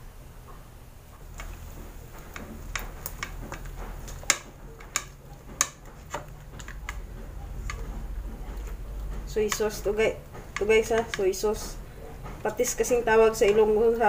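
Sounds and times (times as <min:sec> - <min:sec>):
bones tapping metal pan: 0:01.4 - 0:11.7.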